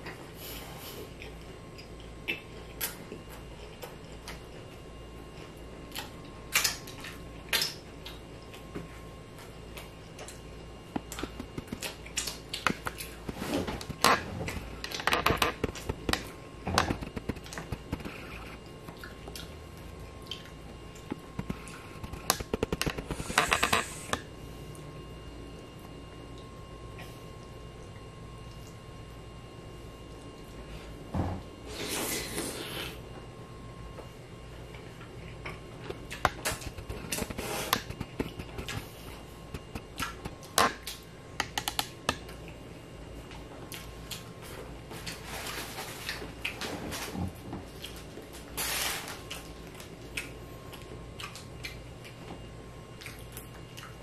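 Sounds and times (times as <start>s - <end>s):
chewing and lip-smacking: 1.1s - 24.1s, 34.8s - 42.6s, 43.3s - 44.3s, 49.3s - 54.0s.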